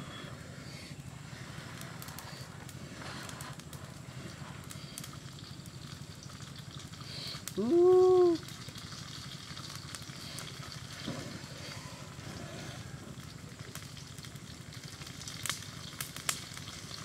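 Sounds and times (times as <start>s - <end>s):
rising call: 0.0s - 1.0s, 7.6s - 8.4s
wood fire crackling: 0.0s - 17.0s.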